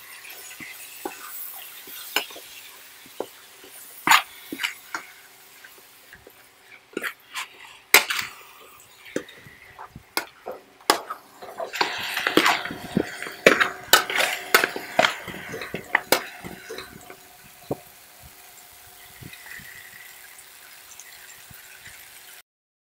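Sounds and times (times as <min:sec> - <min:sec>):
metal spoon clanking on wok: 0:10.2 - 0:17.2.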